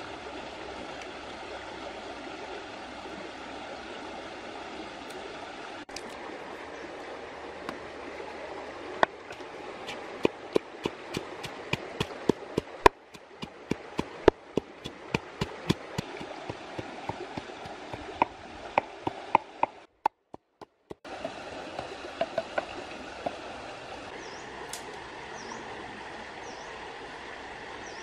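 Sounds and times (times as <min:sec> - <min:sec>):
stream rushing: 0:00.0 - 0:28.0
pestle pounding in wooden mortar: 0:09.3 - 0:21.4.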